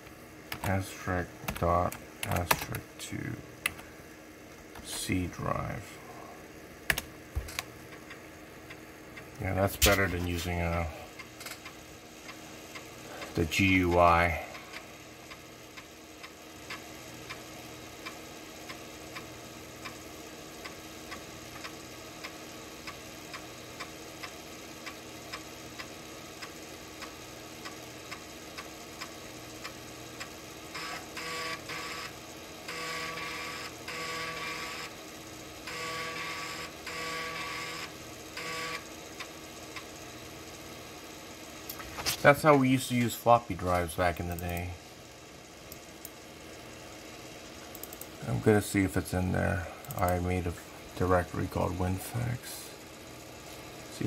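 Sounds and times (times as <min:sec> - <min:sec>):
floppy drive mechanical buzzing: 0:00.0 - 0:54.0.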